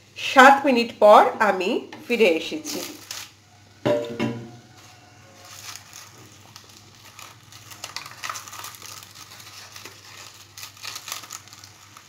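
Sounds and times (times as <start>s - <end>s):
leaves rustling and crinkling: 2.1s - 3.4s, 4.5s - 12.0s.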